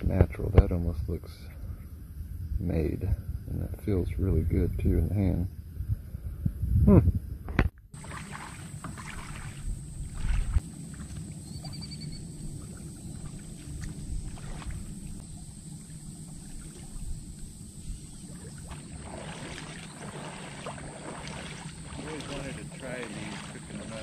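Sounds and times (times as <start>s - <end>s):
steady low rumble: 9.6s - 24.0s
bird trill: 11.4s - 13.5s.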